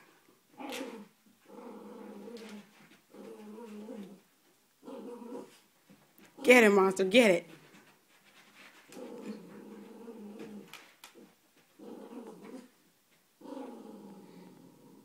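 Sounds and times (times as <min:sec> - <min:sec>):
dog play-growling: 0:00.5 - 0:06.5, 0:08.5 - 0:12.8, 0:13.4 - 0:15.0.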